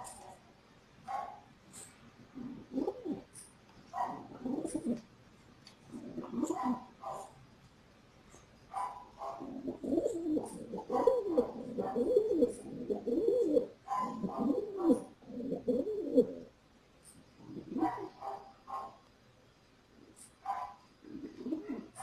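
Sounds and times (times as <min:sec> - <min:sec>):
pigeon cooing: 0:01.8 - 0:03.4, 0:04.0 - 0:05.1, 0:05.9 - 0:07.3, 0:08.8 - 0:16.6, 0:17.4 - 0:19.0, 0:20.0 - 0:22.0.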